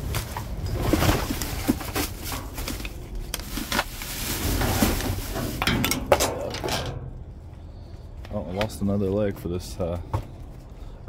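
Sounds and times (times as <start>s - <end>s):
trash rustling and knocking: 0.0s - 7.2s.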